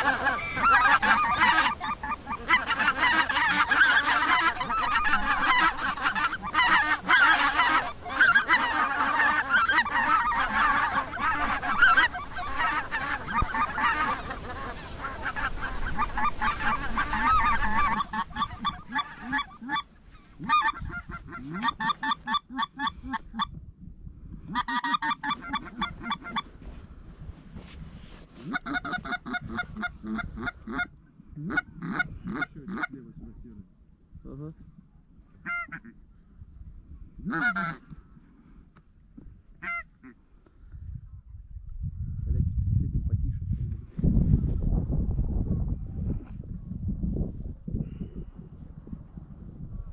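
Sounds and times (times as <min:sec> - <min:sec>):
geese honking: 0:00.0 - 0:23.5, 0:24.5 - 0:26.5, 0:28.4 - 0:33.0, 0:35.4 - 0:36.0, 0:37.2 - 0:37.9, 0:39.6 - 0:40.2.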